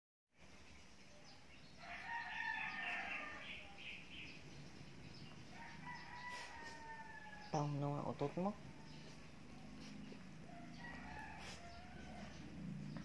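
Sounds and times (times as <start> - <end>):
rooster crowing: 1.8 - 3.7, 5.5 - 7.6, 10.4 - 12.8.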